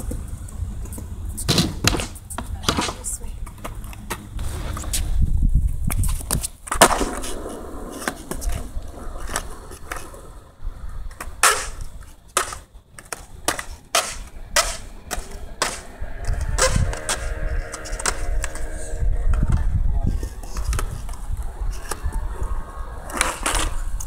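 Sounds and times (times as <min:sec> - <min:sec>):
skateboard deck clacking: 0:00.0 - 0:05.0, 0:05.8 - 0:19.7
skateboard wheels rolling: 0:00.0 - 0:24.0
skateboard slapped on concrete: 0:01.5 - 0:04.3, 0:05.8 - 0:10.0, 0:11.2 - 0:15.9.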